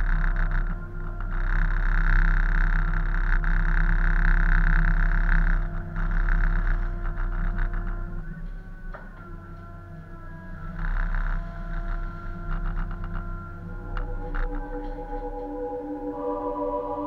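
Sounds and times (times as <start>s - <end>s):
diesel engines droning: 0.0s - 17.0s.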